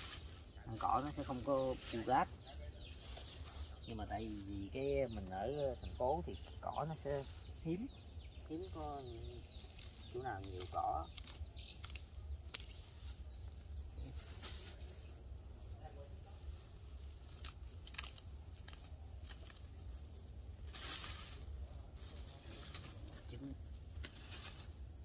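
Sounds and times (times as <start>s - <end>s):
high fast-pulsing insect call: 0.0s - 25.0s
scissors snipping grass: 9.6s - 13.0s, 17.2s - 19.7s
cut grass rustling in plastic bag: 13.9s - 15.1s, 16.4s - 25.0s.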